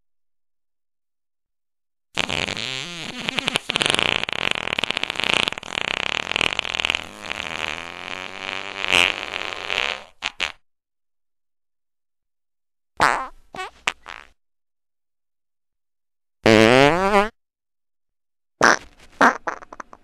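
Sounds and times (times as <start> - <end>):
long fluttering fart: 2.2 - 10.6, 16.4 - 17.4, 18.6 - 20.0.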